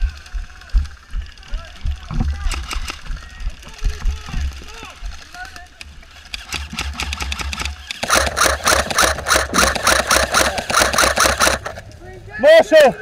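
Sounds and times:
airsoft rifle rapid fire: 2.4s - 3.2s, 6.1s - 11.9s.

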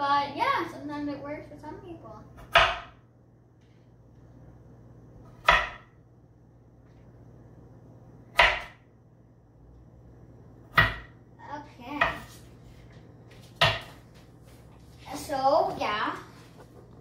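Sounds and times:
knife chopping on cutting board: 2.4s - 3.0s, 5.2s - 5.9s, 8.3s - 8.8s, 10.7s - 11.1s, 13.6s - 14.0s.

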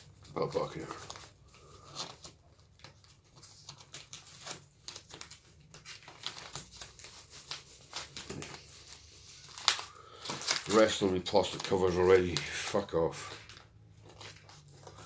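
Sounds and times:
plastic crinkling and rustling: 0.0s - 15.0s.

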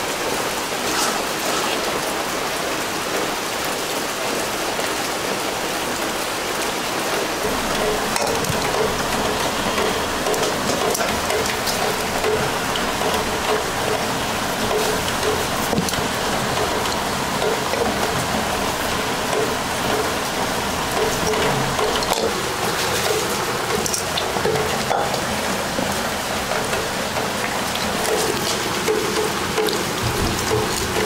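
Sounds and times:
steady rain falling: 0.0s - 31.0s.

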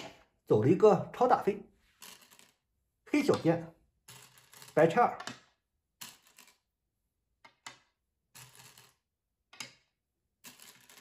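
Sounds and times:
go stones clicking on board: 2.0s - 6.7s, 7.4s - 11.0s.

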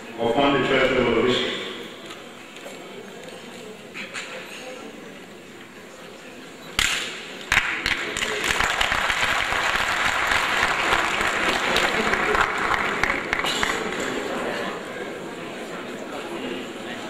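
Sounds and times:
legislators applauding: 7.5s - 14.6s.

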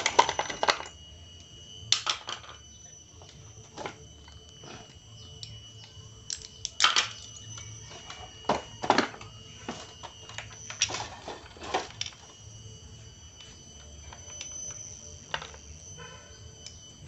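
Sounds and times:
metal engine parts clinking: 0.0s - 1.0s, 1.9s - 12.3s.

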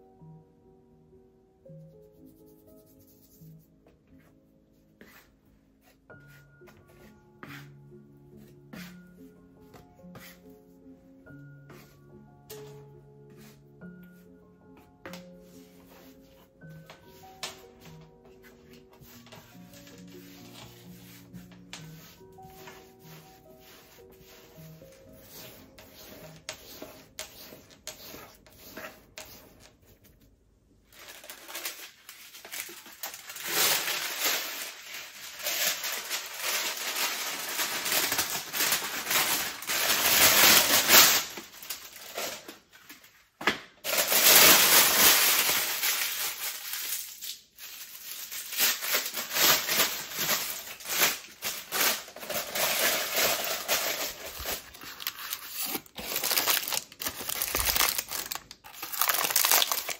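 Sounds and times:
baking paper crinkling: 15.4s - 59.9s.

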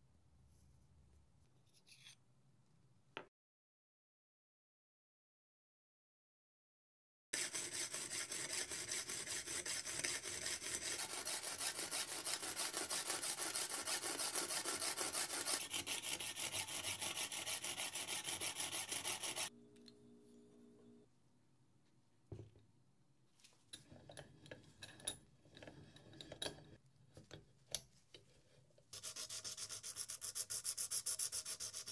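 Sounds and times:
coping saw cutting shell: 7.4s - 19.5s.

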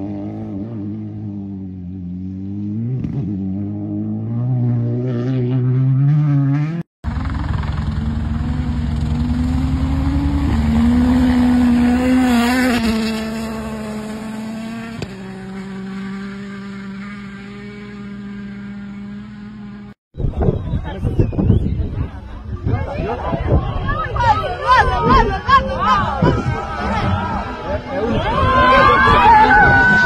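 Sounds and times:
rally car engines at full throttle: 0.0s - 30.0s
rally car passing at speed: 8.0s - 19.8s.

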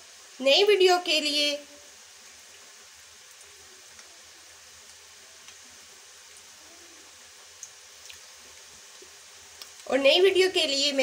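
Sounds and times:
oil sizzling with fries: 0.0s - 11.0s
small crackles: 2.1s - 10.0s.

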